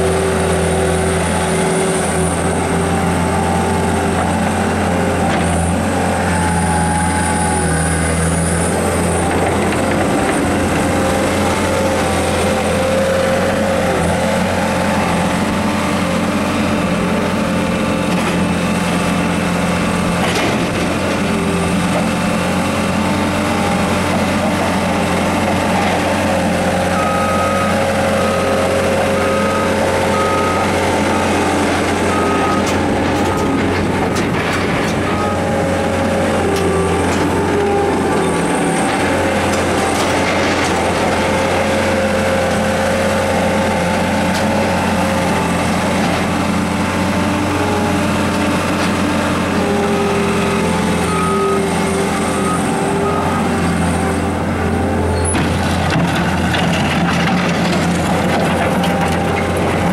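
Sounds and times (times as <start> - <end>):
diesel engine running under load: 0.0 - 59.9
backup alarm beeping: 32.1 - 33.6.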